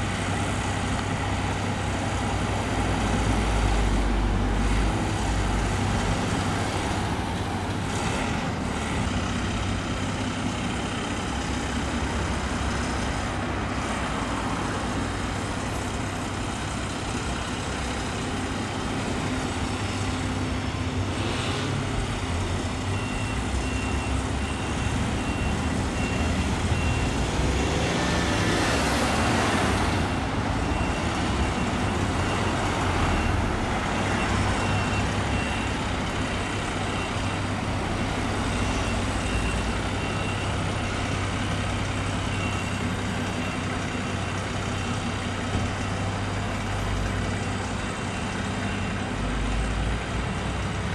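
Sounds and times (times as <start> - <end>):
diesel engine running: 0.0 - 50.9
reversing alarm beeps: 21.2 - 45.6, 47.2 - 49.8.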